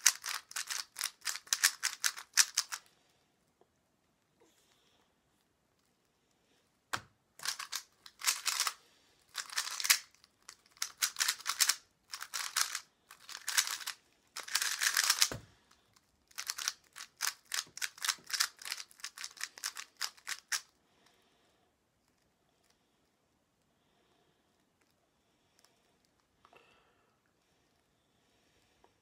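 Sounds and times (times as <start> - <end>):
plastic puzzle cube clicking: 0.0 - 2.8, 7.4 - 20.7.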